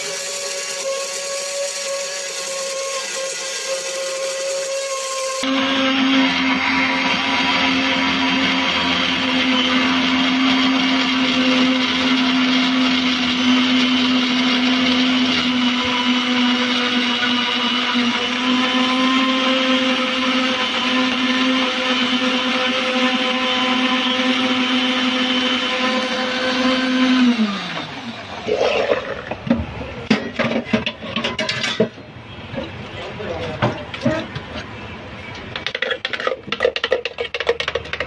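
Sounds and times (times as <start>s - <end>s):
electric blender running: 0.0s - 29.6s.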